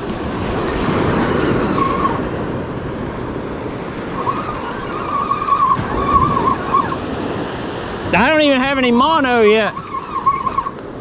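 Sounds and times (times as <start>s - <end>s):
surf washing onto beach: 0.0s - 11.0s
wind on microphone: 0.0s - 11.0s
fishing reel whining: 4.1s - 7.1s, 9.2s - 10.8s.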